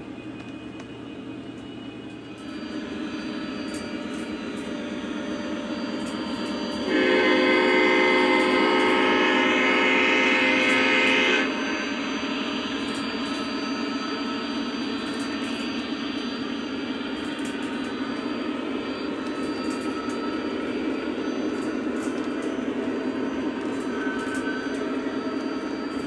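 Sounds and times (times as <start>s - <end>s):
model train wheels rolling: 5.9s - 11.4s, 14.9s - 26.0s
diesel horn blast: 6.9s - 11.5s.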